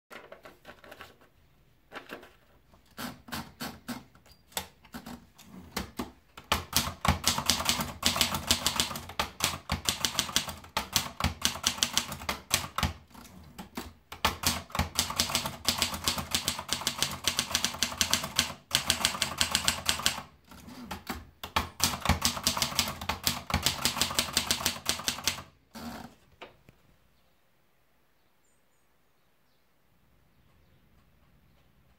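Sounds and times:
typewriter typing: 1.9s - 26.1s
typewriter clicks: 5.8s - 25.5s.

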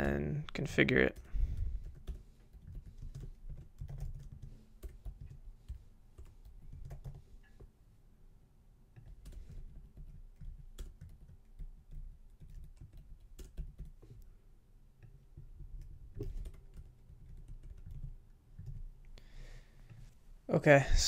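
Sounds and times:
typing on a computer keyboard: 1.1s - 7.2s, 9.0s - 14.2s, 15.0s - 18.9s.

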